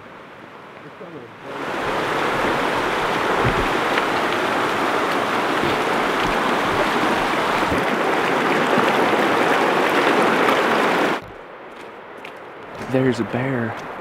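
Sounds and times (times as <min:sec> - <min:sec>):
river rushing over rocks: 0:00.2 - 0:11.3.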